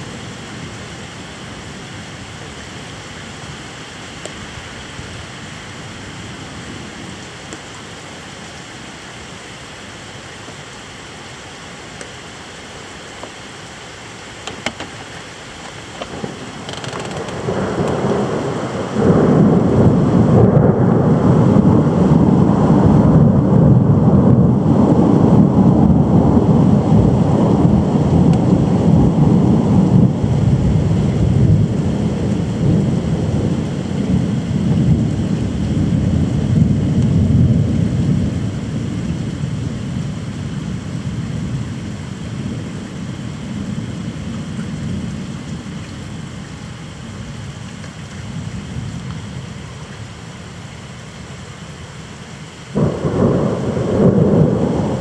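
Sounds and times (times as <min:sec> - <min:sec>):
steady rain: 0:00.0 - 0:55.0
rolling thunder: 0:16.0 - 0:41.7, 0:52.8 - 0:55.0.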